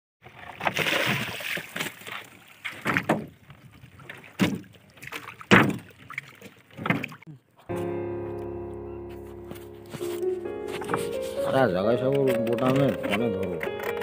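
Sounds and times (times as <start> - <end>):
water splashing: 0.2 - 7.3
thumps on wooden hull: 2.8 - 3.4, 5.5 - 5.9.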